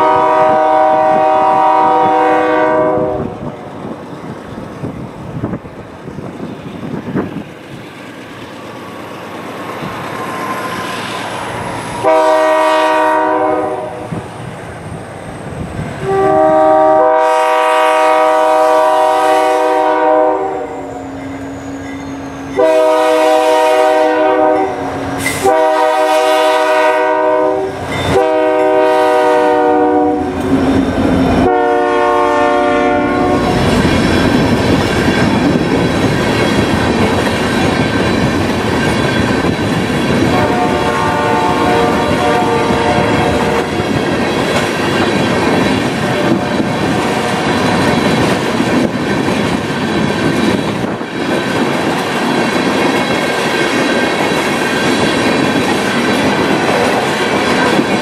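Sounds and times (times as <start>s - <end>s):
locomotive air horn blasts: 0.0s - 3.4s, 12.0s - 14.2s, 16.0s - 21.1s, 22.4s - 33.8s, 40.2s - 43.8s
wheels running on rails: 33.4s - 40.8s, 43.1s - 58.0s.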